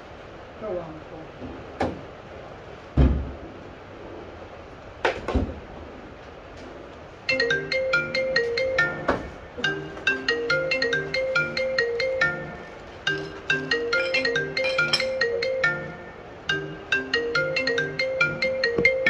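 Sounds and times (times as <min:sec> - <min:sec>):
heavy thud: 0:03.0 - 0:03.4
marimba-like ringtone: 0:07.3 - 0:19.0.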